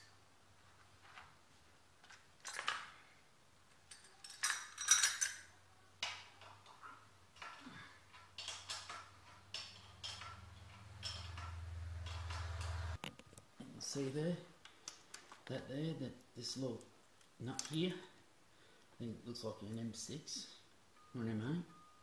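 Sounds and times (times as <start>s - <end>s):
metal tools clinking and rattling: 2.4s - 3.1s, 3.8s - 13.0s.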